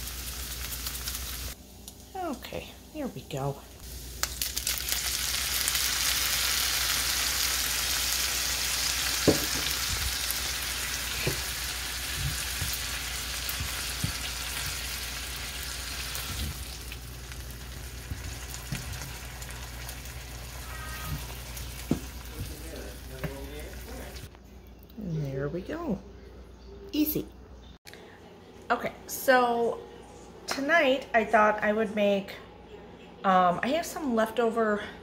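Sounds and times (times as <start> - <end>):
meat sizzling in a skillet: 0.0 - 2.0, 3.8 - 24.3
spatula knocking on pan: 9.2 - 9.8, 21.0 - 22.6.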